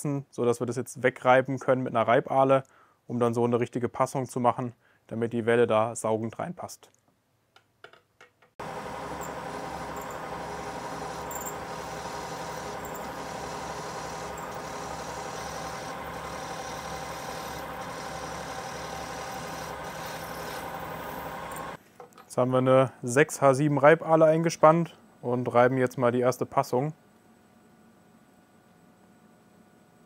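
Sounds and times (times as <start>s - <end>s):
milling machine spindle running: 8.6s - 21.8s.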